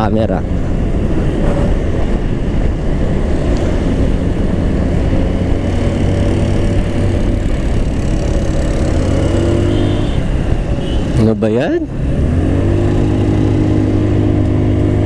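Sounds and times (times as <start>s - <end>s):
wind and road noise: 0.0s - 15.0s
motorcycle engine running: 3.8s - 10.7s.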